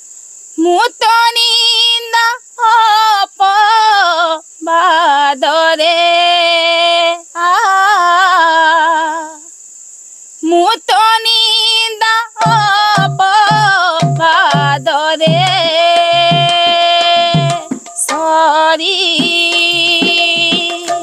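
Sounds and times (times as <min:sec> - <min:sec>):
woman singing devotional melody: 0:00.6 - 0:09.5, 0:10.4 - 0:21.0
low drum beat: 0:12.4 - 0:18.3, 0:19.1 - 0:21.0.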